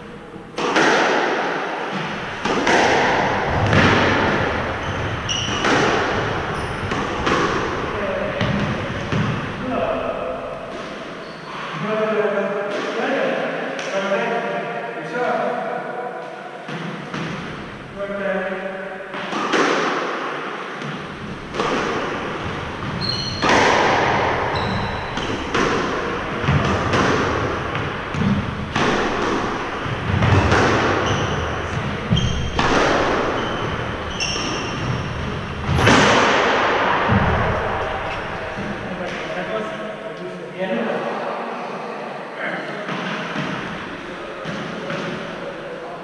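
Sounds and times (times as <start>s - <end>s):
squash ball hitting racket and walls: 0.0s - 14.6s, 15.6s - 39.9s, 42.8s - 45.7s
shoes squeaking on wooden floor: 3.5s - 7.2s, 11.2s - 11.8s, 22.1s - 23.6s, 24.4s - 25.5s, 30.2s - 35.6s.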